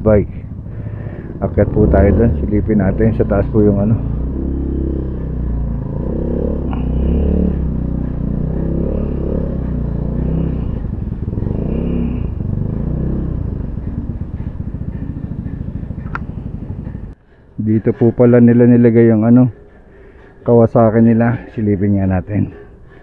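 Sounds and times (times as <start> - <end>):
scooter engine running: 0.0 - 17.2.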